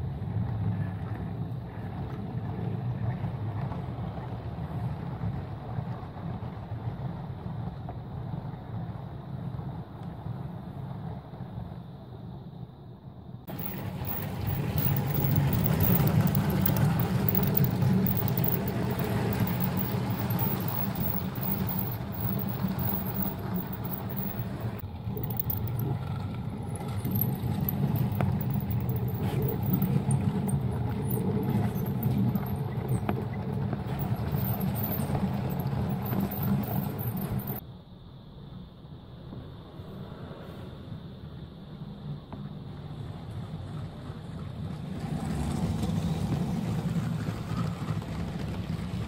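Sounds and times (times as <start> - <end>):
toy train motor hum: 13.5 - 25.9.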